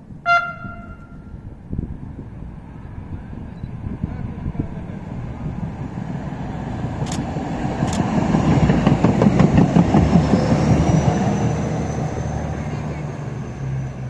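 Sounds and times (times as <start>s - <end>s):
tram wheels rumbling on rails: 0.0s - 14.0s
sharp clicks: 7.0s - 8.1s.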